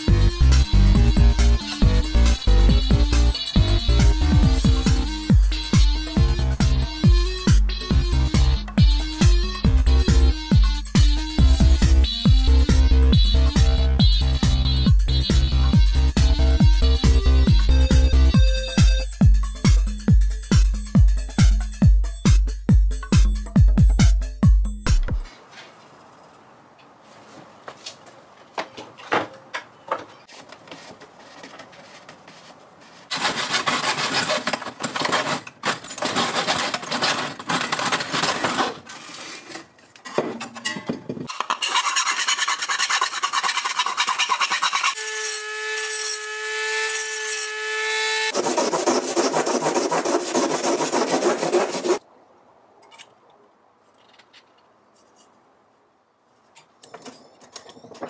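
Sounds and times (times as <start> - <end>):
hacksaw cutting metal: 33.1 - 39.6, 40.2 - 52.0.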